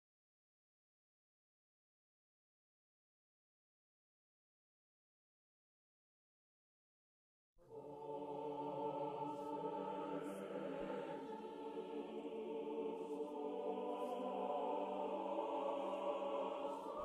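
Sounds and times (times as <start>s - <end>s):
slow choir-like chords: 7.6s - 17.0s.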